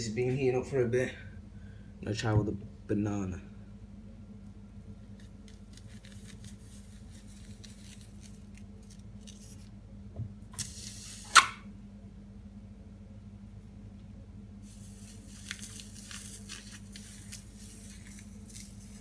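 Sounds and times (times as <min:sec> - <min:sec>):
sharp loud snap: 0:11.3 - 0:11.6.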